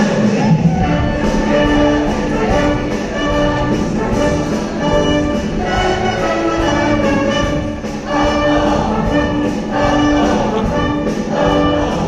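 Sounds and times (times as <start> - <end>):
upbeat band music with brass: 0.0 - 12.0.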